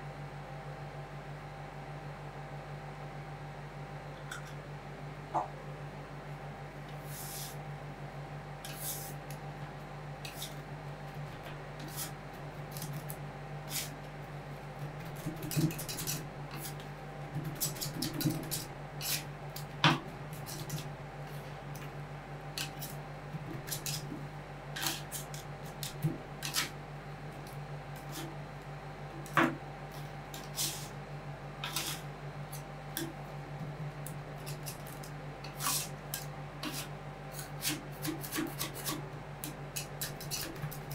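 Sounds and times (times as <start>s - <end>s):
steady low hum: 0.0s - 40.9s
metal spatulas tapping and scraping: 22.6s - 23.0s, 34.4s - 40.9s.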